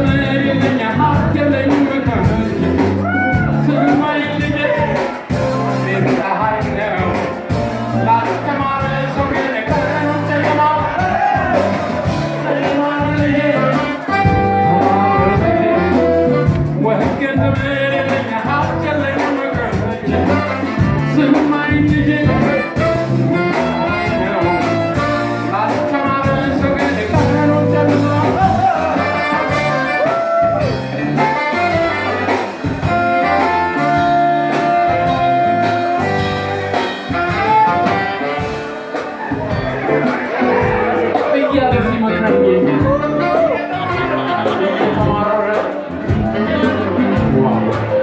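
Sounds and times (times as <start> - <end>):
man singing: 0.0 - 38.4, 39.4 - 48.0
electric guitar: 0.0 - 48.0
keyboard: 0.0 - 48.0
repeating bass line: 0.0 - 48.0
saxophones: 13.6 - 16.6, 28.7 - 41.0.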